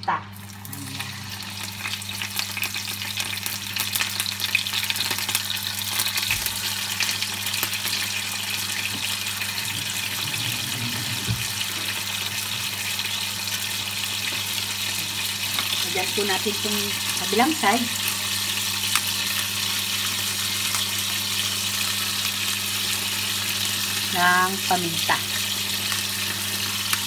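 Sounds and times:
fish sizzling in hot oil: 0.3s - 27.0s.

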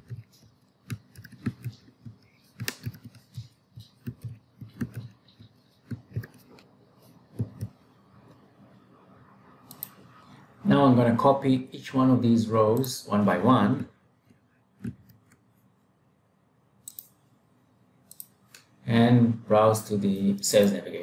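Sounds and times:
computer keyboard typing: 0.0s - 6.7s.

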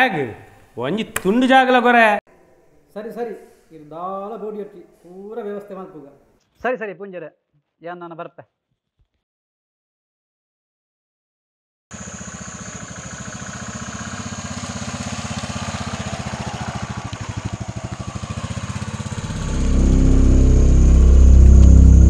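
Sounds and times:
motorcycle engine running: 11.9s - 22.0s.

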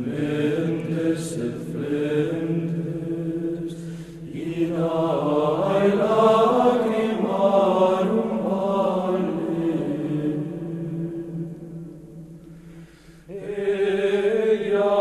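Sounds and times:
person chanting a gliding melody: 0.0s - 12.2s, 13.3s - 15.0s.

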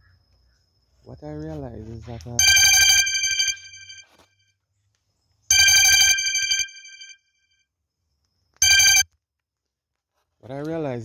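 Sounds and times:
electronic telephone ringtone: 2.4s - 4.2s, 5.5s - 7.3s, 8.6s - 9.1s.

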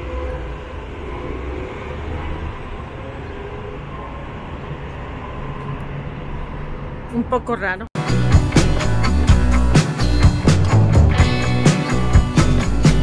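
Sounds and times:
low rumble of traffic: 0.0s - 7.9s.

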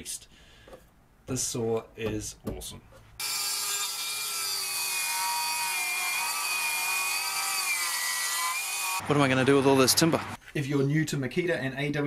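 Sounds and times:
circular saw cutting wood: 3.2s - 10.4s.

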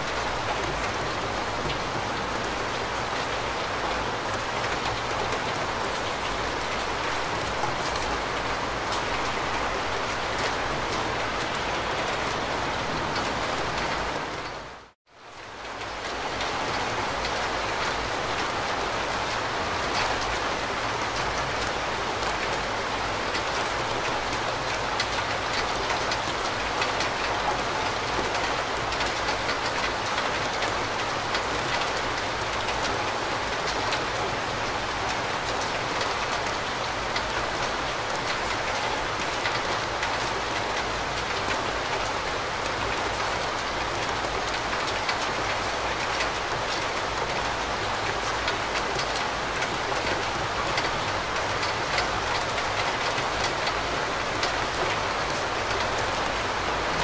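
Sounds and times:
steady rain hiss: 0.0s - 57.0s.

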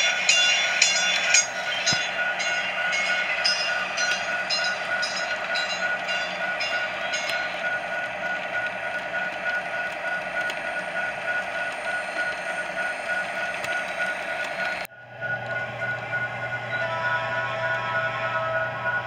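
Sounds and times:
high repeated ringing: 0.0s - 14.4s
model train rolling and motor hum: 0.0s - 19.0s.

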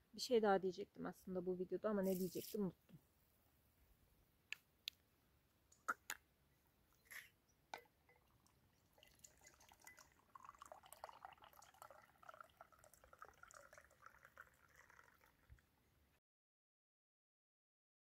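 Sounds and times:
liquid trickling into cup: 7.8s - 15.7s.

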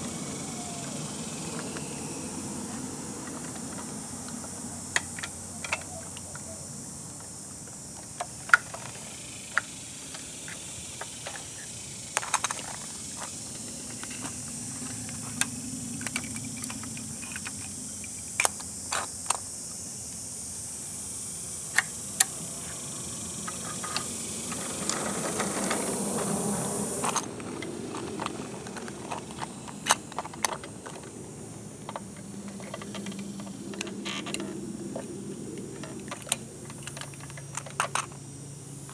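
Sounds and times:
steady high hiss: 0.0s - 38.9s
toy clicks and clacks on concrete: 2.7s - 6.6s, 8.0s - 19.5s, 23.4s - 26.4s, 27.0s - 38.9s.

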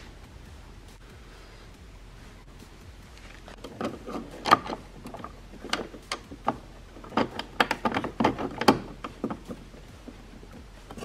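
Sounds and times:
metal hardware clicking and tapping: 3.6s - 11.0s.

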